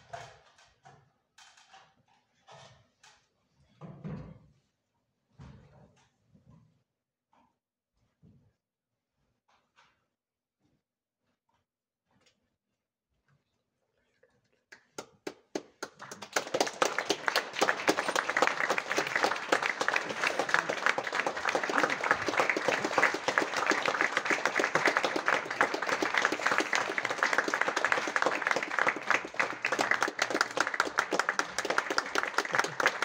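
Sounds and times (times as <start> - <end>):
audience applauding: 15.0 - 33.0.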